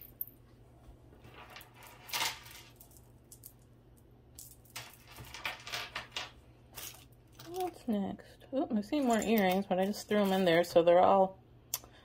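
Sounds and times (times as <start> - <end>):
jewelry clinking and rattling: 1.2 - 3.7, 4.4 - 7.9, 8.9 - 10.8.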